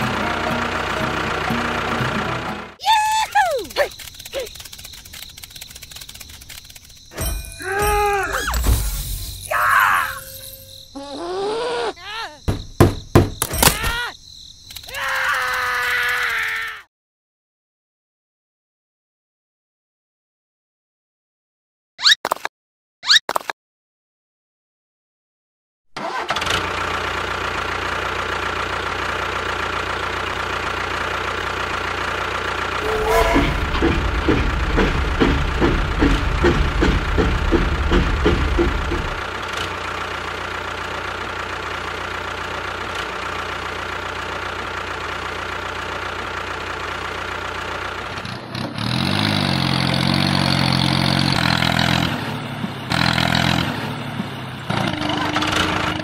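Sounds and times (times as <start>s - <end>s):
tractor engine running: 0.0s - 7.6s, 12.4s - 13.7s, 26.0s - 56.0s.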